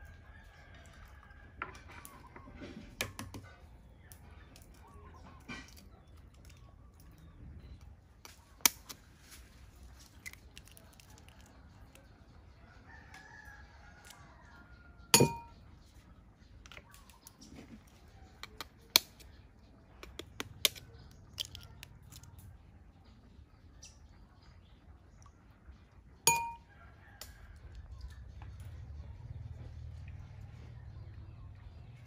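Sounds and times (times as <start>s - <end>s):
distant rooster crowing: 12.6s - 15.6s
eggs knocking on metal bowl: 15.2s - 15.5s, 26.3s - 26.6s.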